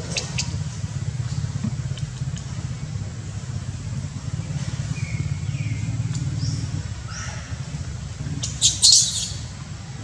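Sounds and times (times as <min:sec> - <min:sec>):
baby monkey squeaking and screeching: 0:08.6 - 0:09.4.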